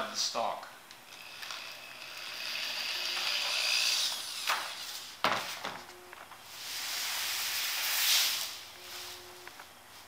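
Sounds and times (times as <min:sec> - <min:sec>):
electric drill whining: 0:01.1 - 0:05.2.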